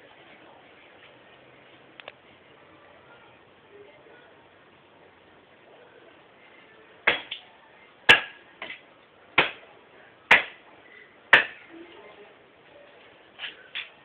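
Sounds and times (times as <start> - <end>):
axe chopping wood: 7.1 - 7.4, 8.1 - 8.8, 9.4 - 9.6, 10.3 - 10.6, 11.3 - 11.6.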